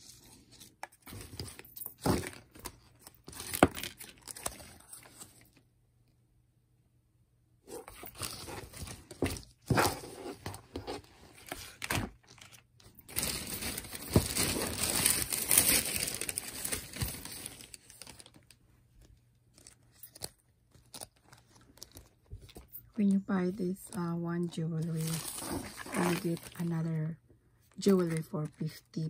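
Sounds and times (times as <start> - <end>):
plastic bags rustling and crinkling: 7.9 - 22.8, 24.8 - 27.0.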